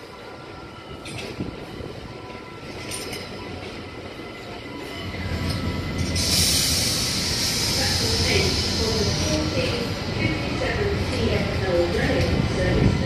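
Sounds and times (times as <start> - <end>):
train wheels squealing on rails: 0.0 - 10.0
train low rumble: 0.0 - 13.0
loud rushing hiss: 6.1 - 9.4.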